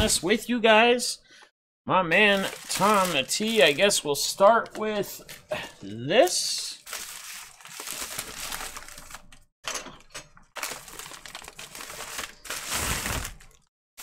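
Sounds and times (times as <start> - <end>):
plastic envelope crinkling: 2.1 - 5.5, 6.8 - 9.4, 10.6 - 13.7.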